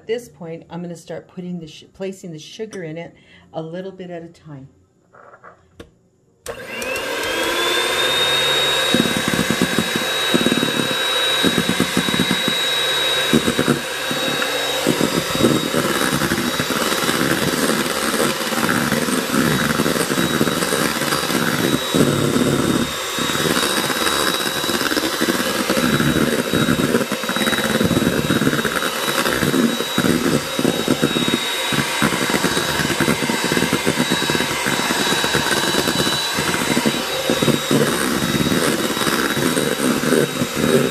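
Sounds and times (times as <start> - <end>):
electric hand mixer whining: 6.5 - 40.9.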